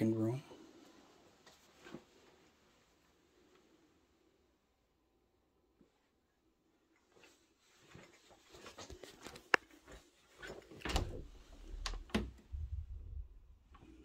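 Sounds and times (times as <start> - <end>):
closet door opening: 10.4 - 12.6
door clicks and knocks: 10.8 - 12.4
low rumbling: 10.9 - 13.8.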